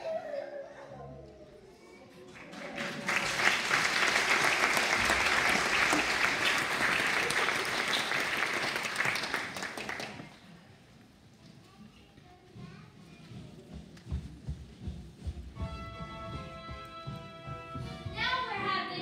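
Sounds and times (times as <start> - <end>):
audience applauding: 2.2 - 10.5.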